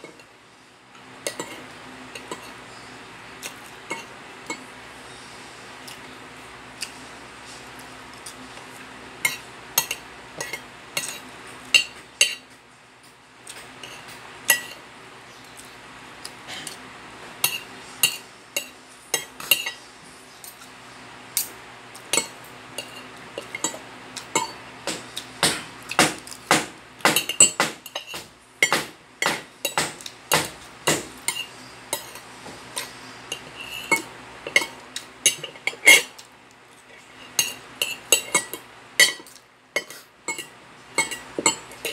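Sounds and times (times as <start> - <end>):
cutlery clinking on a plate: 1.2 - 1.6, 9.2 - 14.8, 17.4 - 19.8, 21.4 - 36.2, 37.0 - 41.9.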